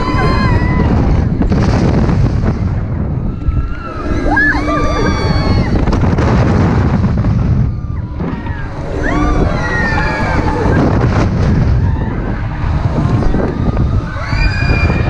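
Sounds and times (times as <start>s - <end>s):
wind buffeting microphone: 0.0s - 15.0s
voices crying out: 3.4s - 5.8s.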